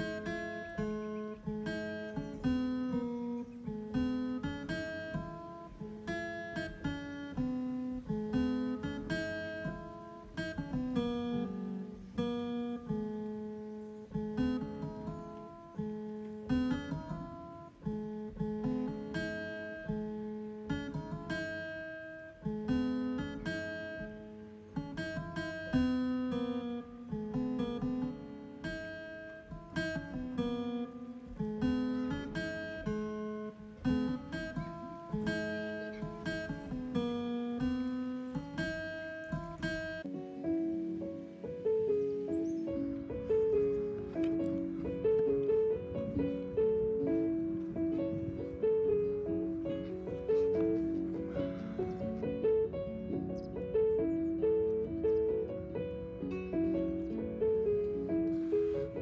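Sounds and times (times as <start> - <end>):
electronic keyboard music: 27.7 - 59.0.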